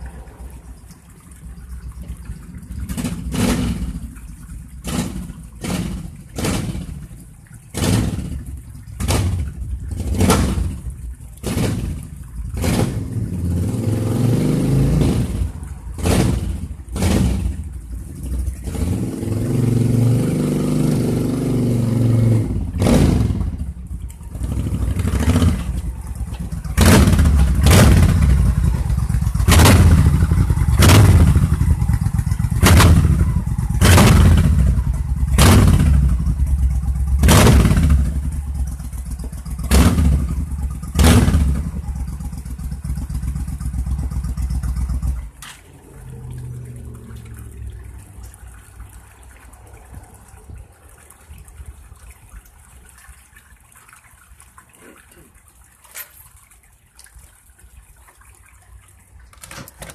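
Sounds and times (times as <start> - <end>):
motorcycle engine revving: 2.8 - 4.0, 4.8 - 7.1, 7.7 - 47.5.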